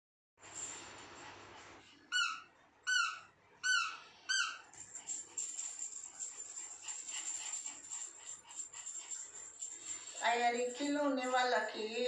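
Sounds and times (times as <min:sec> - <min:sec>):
dog toy squeaking: 0:02.1 - 0:04.7.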